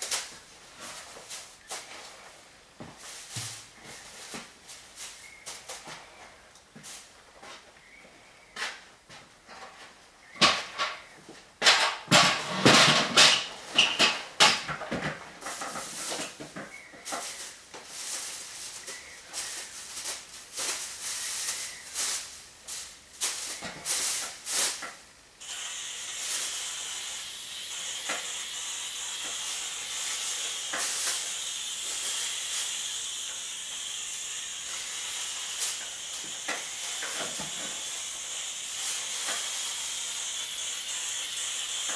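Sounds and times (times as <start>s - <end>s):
spray hiss: 0.0s - 6.2s, 15.4s - 41.9s
rustling and knocks: 0.0s - 7.7s.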